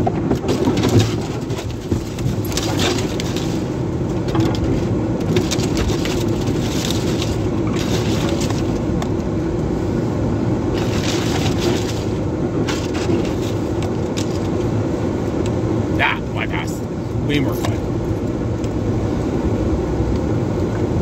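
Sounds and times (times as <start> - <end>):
vehicle engine under load: 0.0 - 21.0
tyres crunching through snow: 0.3 - 9.0, 10.6 - 14.8.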